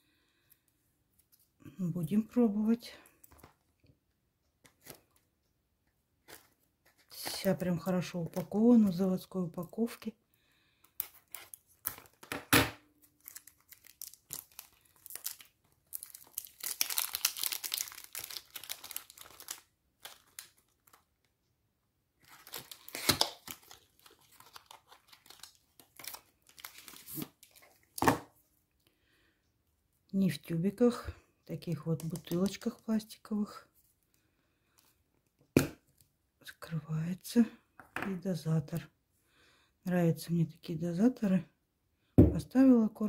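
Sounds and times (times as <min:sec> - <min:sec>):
wrapping crinkling: 0:11.0 - 0:12.3, 0:13.0 - 0:21.3, 0:22.2 - 0:28.0, 0:31.7 - 0:33.0
scissors snipping packaging: 0:22.2 - 0:27.3.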